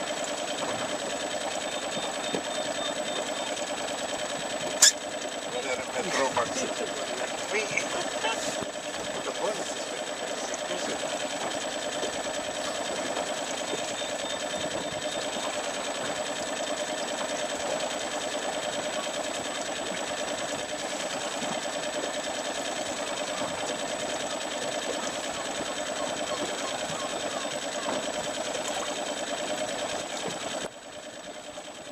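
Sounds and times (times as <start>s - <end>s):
outboard motor running: 0.0s - 31.9s.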